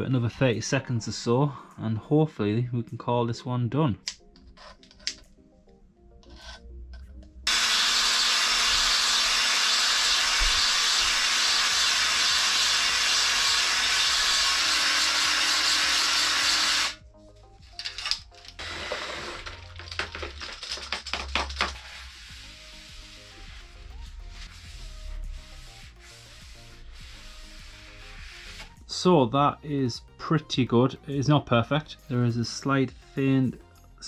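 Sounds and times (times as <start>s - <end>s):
drill grinding whir: 7.5s - 17.0s, 18.6s - 19.6s.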